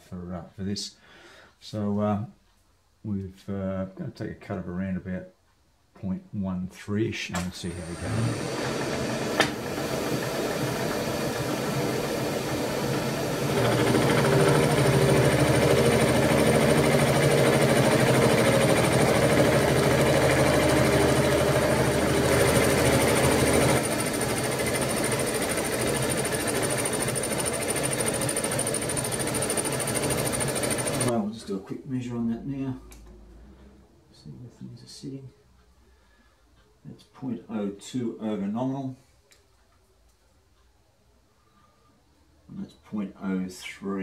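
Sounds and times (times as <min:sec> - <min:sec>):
mill cutting metal: 0:07.6 - 0:31.1
milling machine running: 0:07.7 - 0:31.1
click: 0:39.3 - 0:40.7.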